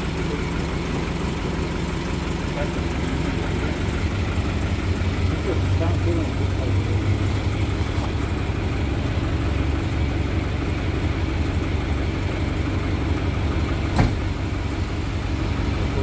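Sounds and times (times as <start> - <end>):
truck engine running at low revs: 0.0 - 16.0
sharp knock: 14.0 - 14.2.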